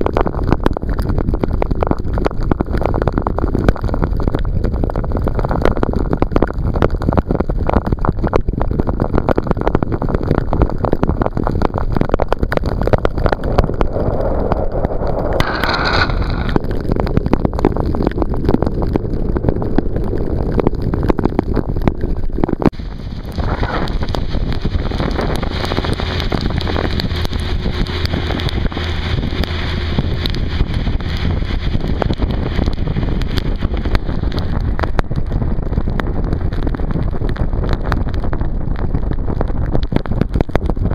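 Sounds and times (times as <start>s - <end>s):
wind buffeting microphone: 0.0s - 40.9s
tyres on wet road: 12.2s - 20.9s, 22.7s - 40.4s.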